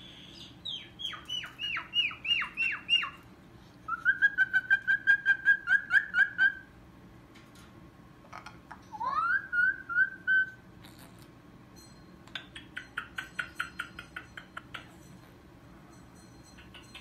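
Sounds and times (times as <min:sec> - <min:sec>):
cockatoo whistling: 0:00.0 - 0:03.2, 0:03.9 - 0:06.7, 0:09.0 - 0:10.6.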